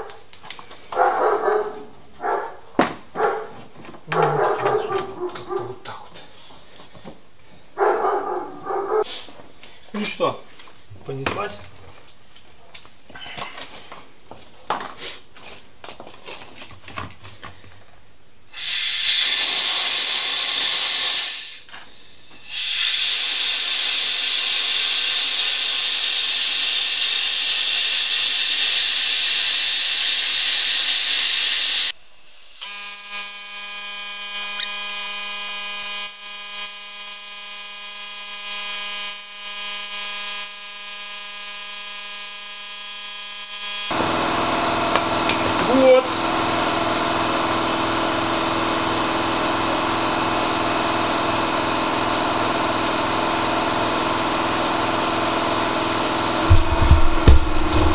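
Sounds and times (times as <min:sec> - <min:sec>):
compressed air hissing: 0:18.5 - 0:32.6
steady multi-tone whine: 0:18.9 - 0:57.9.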